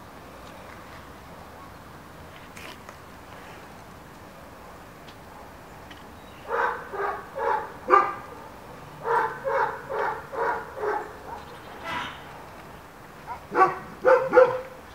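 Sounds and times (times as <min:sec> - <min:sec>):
dog barking: 0:06.5 - 0:12.1, 0:13.2 - 0:14.8.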